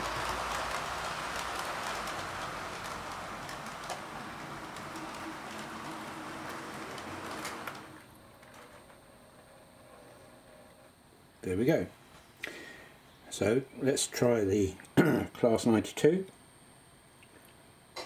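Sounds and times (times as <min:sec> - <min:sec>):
model train wheels rumbling: 0:00.0 - 0:10.4.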